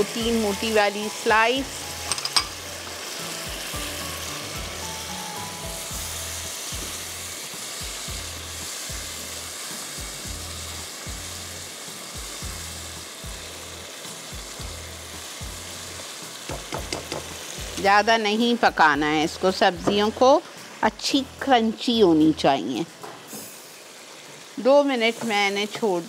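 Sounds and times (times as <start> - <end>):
vegetables sizzling in a wok: 0.0 - 26.0
background music with low beat: 1.6 - 18.0.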